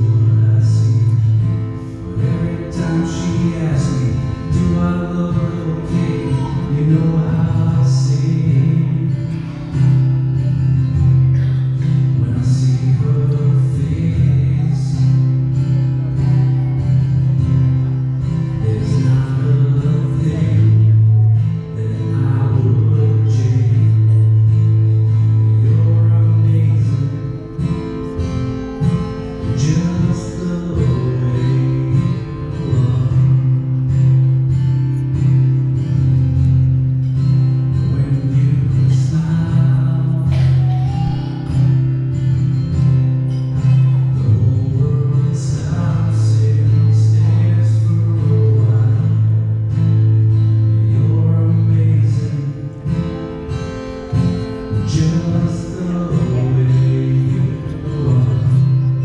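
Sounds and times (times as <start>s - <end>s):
person singing: 0.0s - 24.5s, 25.4s - 33.6s, 37.7s - 41.8s, 53.9s - 59.0s
acoustic guitar: 0.0s - 59.0s.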